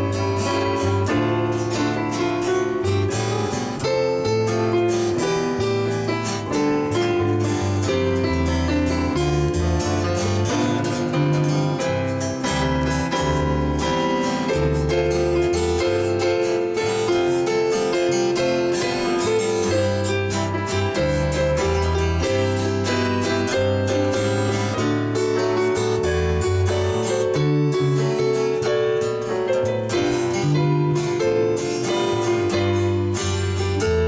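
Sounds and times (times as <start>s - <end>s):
electric bass line: 0.0s - 17.6s
digital piano playing: 0.0s - 34.0s
strummed acoustic guitars: 0.0s - 34.0s.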